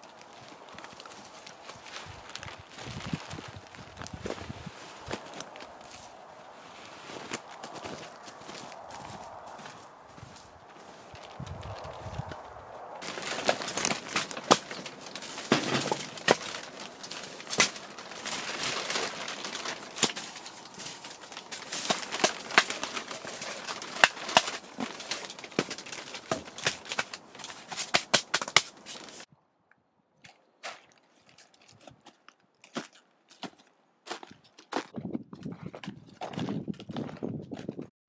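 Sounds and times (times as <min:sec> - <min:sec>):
continuous rustling: 0:00.0 - 0:29.3.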